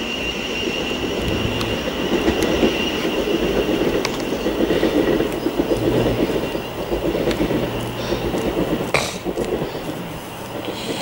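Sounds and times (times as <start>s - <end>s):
faint high squeal: 0.0s - 4.0s
train wheels rumbling on rail: 0.0s - 11.0s.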